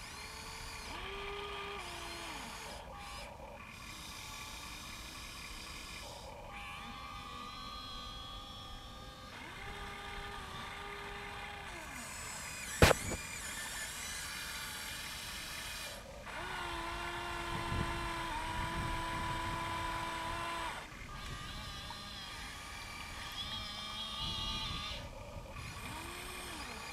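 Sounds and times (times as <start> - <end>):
toy excavator electric motors whining: 0.0 - 26.9
sharp click: 12.7 - 13.3.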